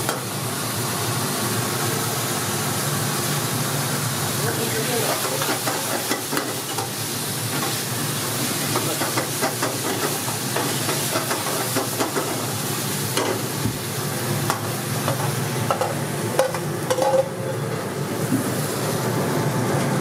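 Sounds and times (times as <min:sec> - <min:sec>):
food sizzling in a wok: 0:00.0 - 0:20.0.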